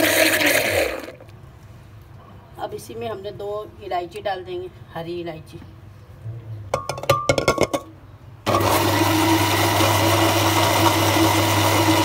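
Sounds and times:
electric blender running: 0.0s - 1.2s, 8.5s - 12.0s.

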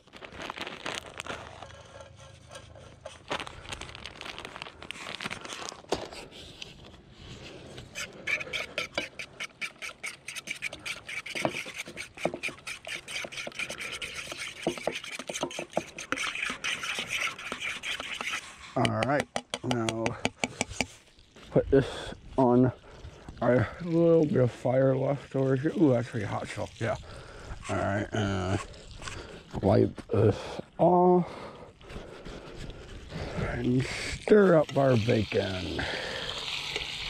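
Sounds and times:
plastic bag rustling: 0.0s - 7.6s
fork beating eggs in a pot: 1.5s - 3.3s, 7.5s - 21.0s.

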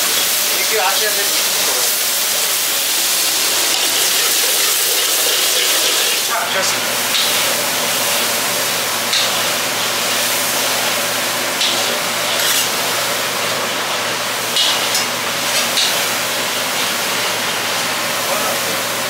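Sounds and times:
kitchen rushing noise: 11.7s - 13.0s
metal spoon clinking on trays: 12.4s - 12.8s.

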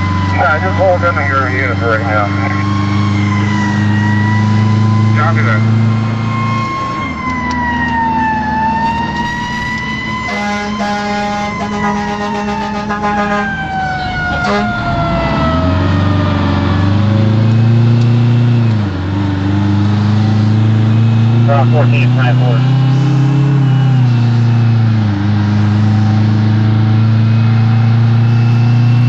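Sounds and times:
fire engine siren wailing: 0.0s - 29.0s
truck engine accelerating: 0.0s - 29.0s
air horn blast: 9.1s - 13.6s, 14.4s - 14.8s.

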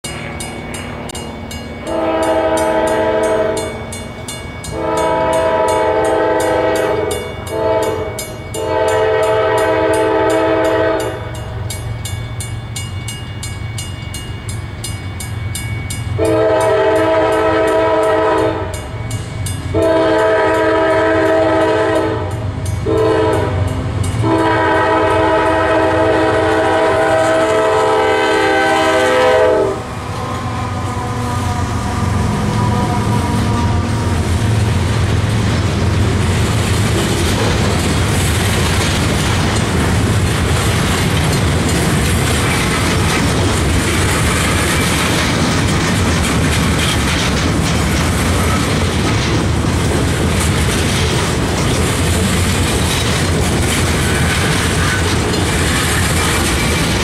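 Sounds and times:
train air horn blasts: 1.8s - 3.8s, 4.7s - 11.6s, 16.2s - 18.9s, 19.7s - 34.6s.

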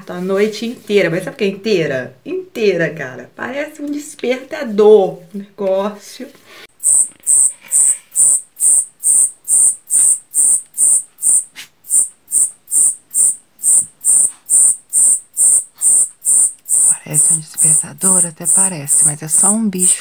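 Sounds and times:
cicada singing: 6.8s - 20.0s.

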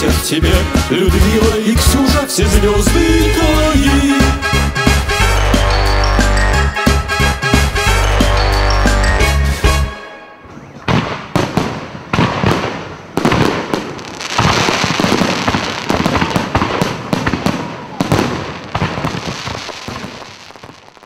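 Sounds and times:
fireworks bangs: 10.6s - 21.0s.

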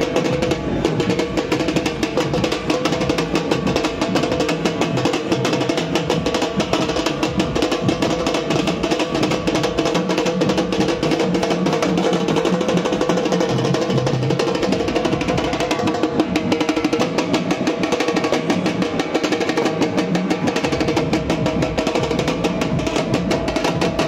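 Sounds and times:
fast drumming: 0.0s - 24.0s.

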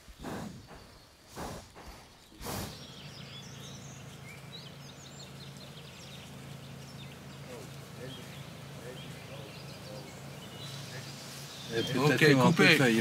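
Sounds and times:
short rushing noise bursts: 0.0s - 3.2s
birds chirping: 0.0s - 13.0s
steady low hum: 0.0s - 13.0s.

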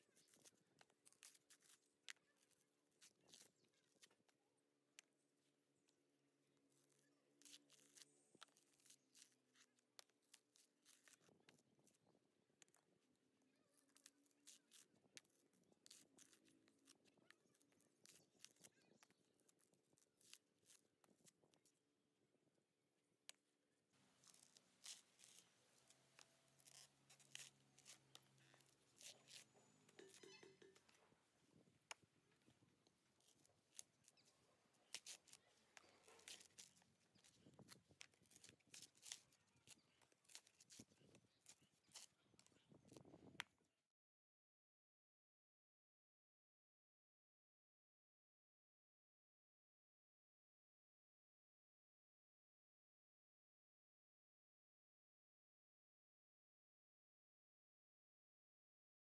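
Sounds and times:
coconut husk tearing and crackling: 0.0s - 4.4s, 6.6s - 21.7s, 24.0s - 43.5s
fibres snapping: 24.2s - 31.0s, 33.2s - 42.5s.

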